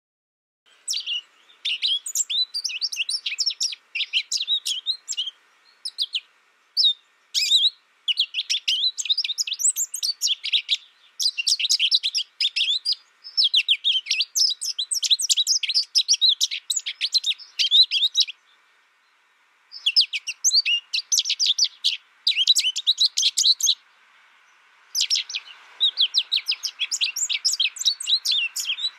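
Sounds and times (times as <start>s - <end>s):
goldfinch singing: 0.7s - 18.6s, 19.7s - 23.8s, 24.9s - 28.9s.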